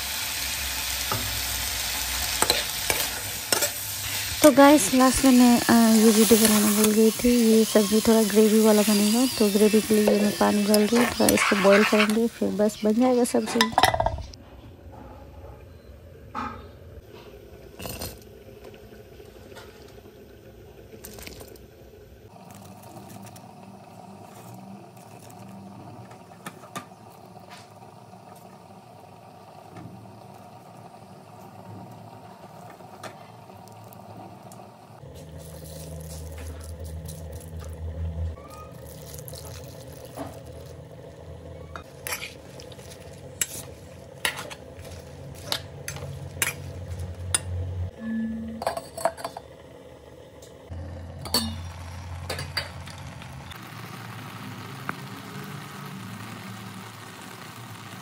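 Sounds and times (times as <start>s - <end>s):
pan and utensils clinking: 2.4s - 14.4s, 41.8s - 49.5s, 51.2s - 53.0s
steady hum: 39.1s - 58.0s.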